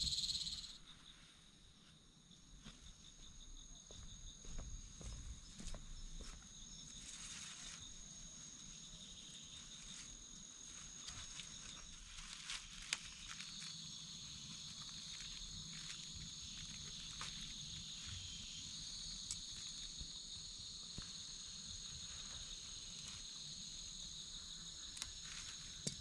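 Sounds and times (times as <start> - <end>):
insects droning: 0.0 - 26.0.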